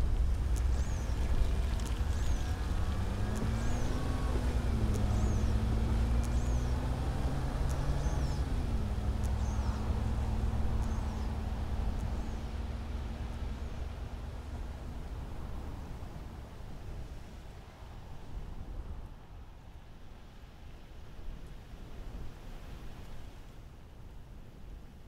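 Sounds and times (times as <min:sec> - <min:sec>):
van engine running: 0:00.0 - 0:15.7.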